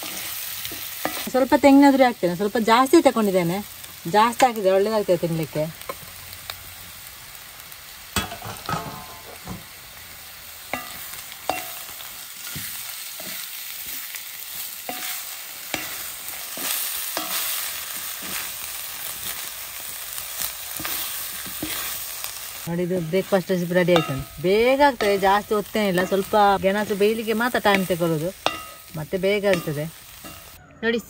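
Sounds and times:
low sizzle: 0:00.0 - 0:30.7
spatula stirring in iron pan: 0:10.7 - 0:19.5, 0:20.7 - 0:22.0, 0:23.0 - 0:30.6.

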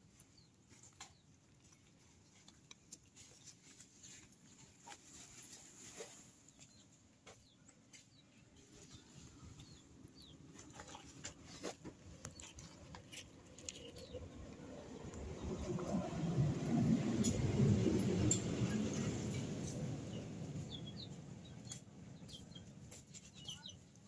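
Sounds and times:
cats chewing and licking: 0:00.0 - 0:05.4, 0:08.5 - 0:14.6.

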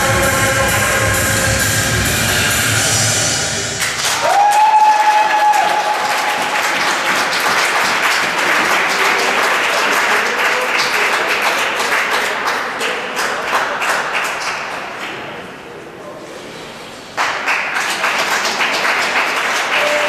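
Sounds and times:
high held cheer: 0:03.6 - 0:11.1, 0:19.6 - 0:20.0
audience applauding: 0:03.8 - 0:15.0, 0:17.2 - 0:20.0.

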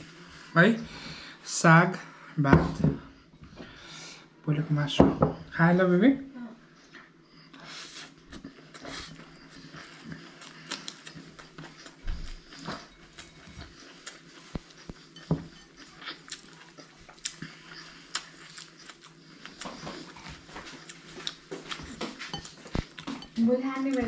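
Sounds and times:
chewing: 0:08.3 - 0:24.0
rice mixed against ceramic bowl: 0:17.3 - 0:24.0.

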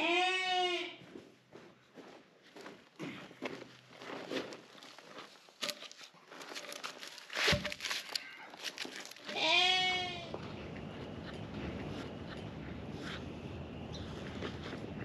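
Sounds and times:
animal bleating: 0:00.0 - 0:01.0, 0:09.3 - 0:10.4
logs scraping and knocking: 0:04.1 - 0:09.5
log thumping down: 0:07.4 - 0:08.0.

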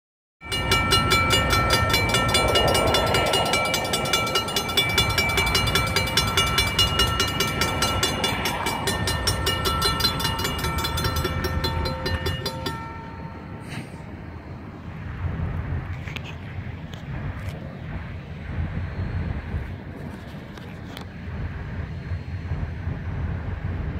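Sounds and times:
crossing warning bell ringing: 0:00.4 - 0:14.8.

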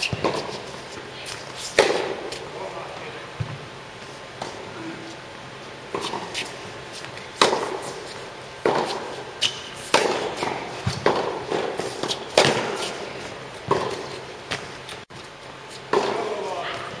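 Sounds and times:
tennis ball struck by racket: 0:00.0 - 0:00.6, 0:01.7 - 0:02.4, 0:07.4 - 0:14.7, 0:15.9 - 0:16.5
tennis ball bouncing: 0:00.0 - 0:01.0, 0:01.7 - 0:02.4, 0:05.9 - 0:15.0, 0:15.9 - 0:16.8.

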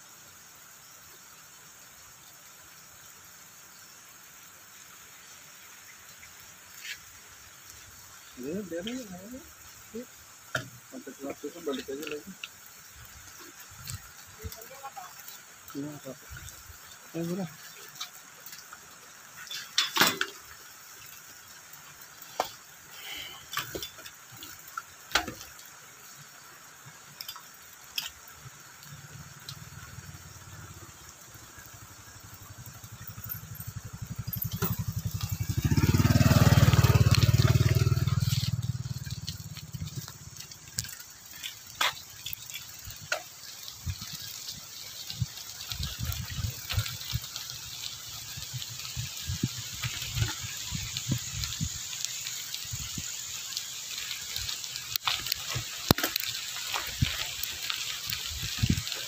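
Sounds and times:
motorbike passing by: 0:32.7 - 0:40.5.

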